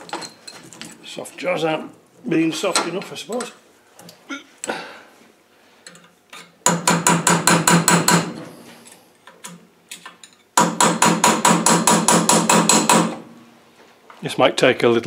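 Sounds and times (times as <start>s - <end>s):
hammer striking steel punch: 6.6s - 8.4s, 10.6s - 13.2s.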